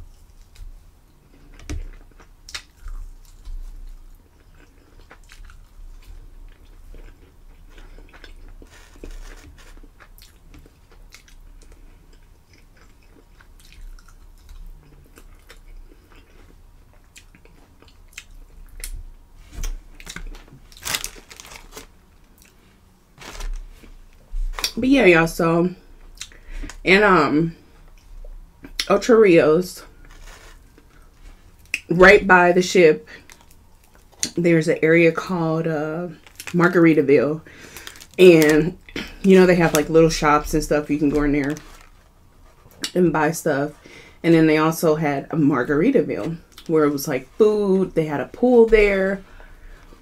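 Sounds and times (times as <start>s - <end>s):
small crunches and clicks: 7.8s - 11.8s, 17.2s - 22.6s, 36.2s - 36.6s, 37.6s - 39.0s.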